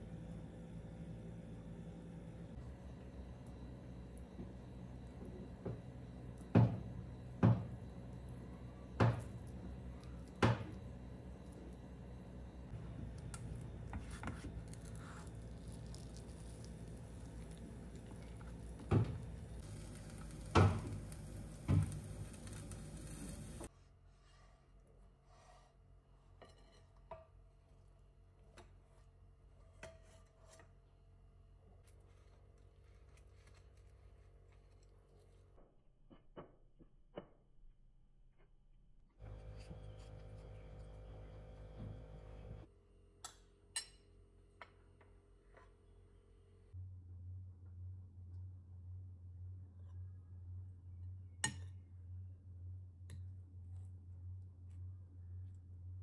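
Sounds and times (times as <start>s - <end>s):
low steady hum: 0.0s - 36.5s, 37.6s - 56.0s
spatula scraping a plate: 25.3s - 27.1s, 28.8s - 30.8s.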